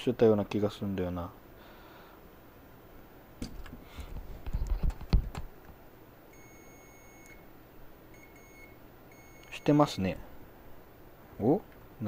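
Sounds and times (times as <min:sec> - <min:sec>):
multimeter beeping: 0:06.3 - 0:07.4, 0:08.2 - 0:09.8.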